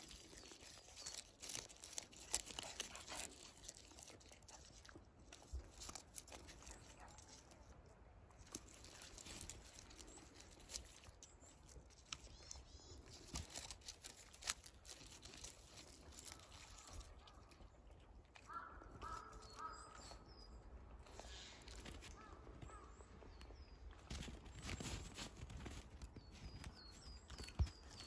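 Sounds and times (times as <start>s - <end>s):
dog chewing leaves: 0.0s - 20.3s.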